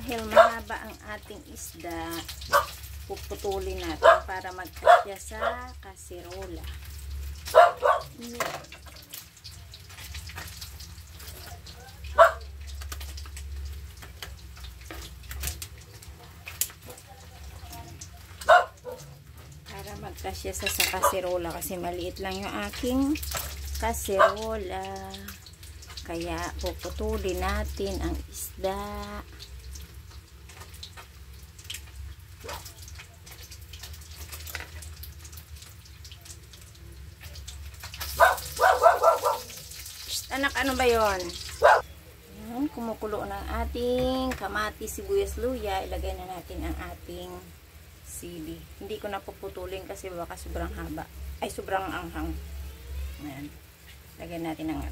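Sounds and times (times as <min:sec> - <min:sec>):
water dripping and splashing: 0:00.0 - 0:54.9
scissors crunching through fried fish: 0:29.7 - 0:38.6.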